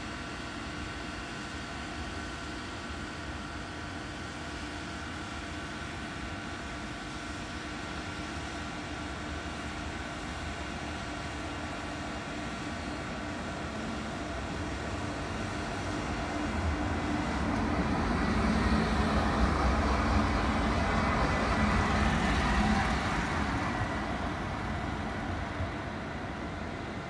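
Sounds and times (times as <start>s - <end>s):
tram electric hum: 0.0s - 27.0s
tram rolling rumble: 8.5s - 27.0s.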